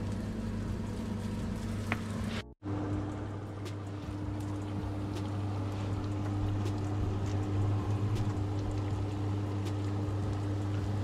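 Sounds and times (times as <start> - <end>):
constant low hum: 0.0 - 11.0
dough frying in hot oil: 0.0 - 11.0.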